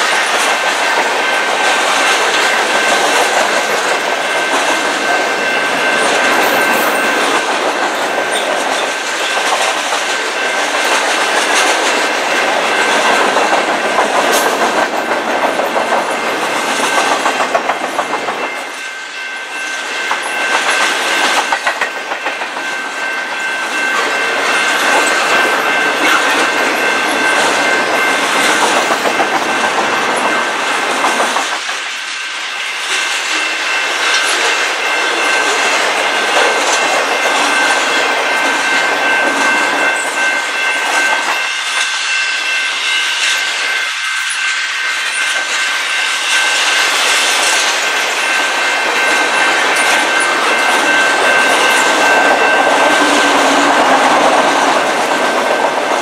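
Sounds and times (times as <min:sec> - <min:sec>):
freight train wheels on rails: 0:00.0 - 0:56.0
steady high tone: 0:16.0 - 0:31.1, 0:31.9 - 0:56.0.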